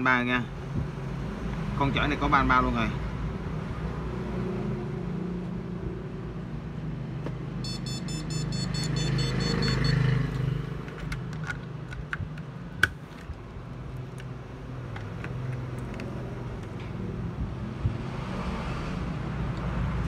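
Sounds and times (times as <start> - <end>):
electronic beeper chirping: 7.6 - 10.1.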